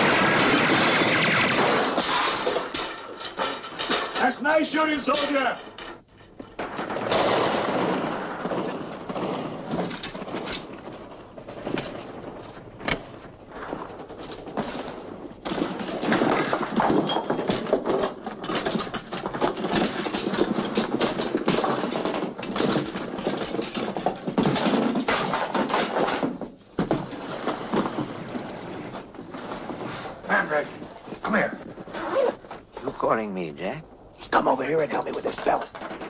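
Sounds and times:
machine-gun bursts: 0:00.0 - 0:02.7.

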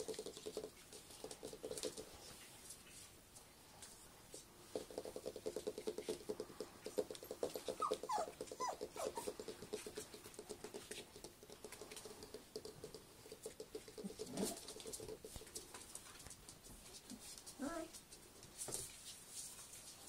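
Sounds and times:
paws clicking on wooden floor: 0:00.0 - 0:02.4, 0:04.7 - 0:20.0
puppy whimpering squeaks: 0:07.7 - 0:09.3.

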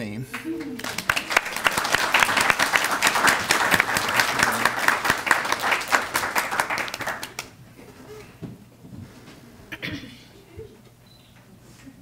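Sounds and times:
audience applauding: 0:00.3 - 0:07.6.

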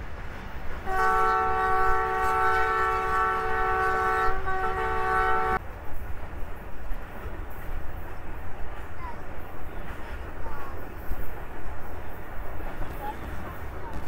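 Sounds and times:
train rumbling on rails: 0:00.0 - 0:14.0
locomotive air horn chord: 0:00.8 - 0:05.6.

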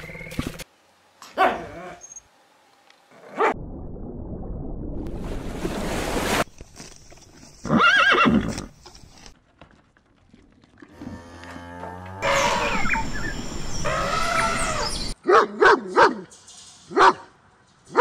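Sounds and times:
horse whinnying: 0:07.6 - 0:08.7.

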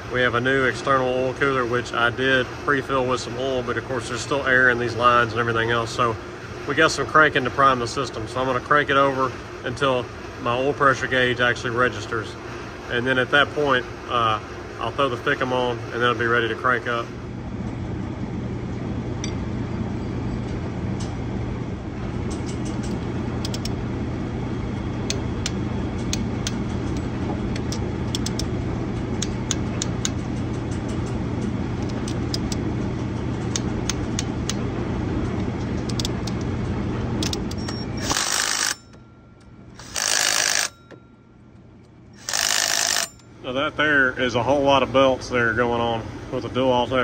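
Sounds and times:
steady mechanical hum: 0:00.0 - 0:47.0
small tool clicks: 0:22.8 - 0:23.7, 0:27.6 - 0:28.5, 0:35.9 - 0:36.4, 0:37.2 - 0:39.0, 0:42.2 - 0:43.3
cordless power tool running bolts: 0:37.2 - 0:39.0, 0:39.7 - 0:41.0, 0:42.2 - 0:43.3.

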